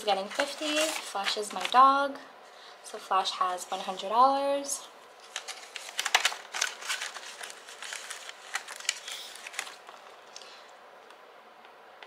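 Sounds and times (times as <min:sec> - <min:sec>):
banknotes rustling: 0:00.0 - 0:02.0, 0:05.2 - 0:10.6.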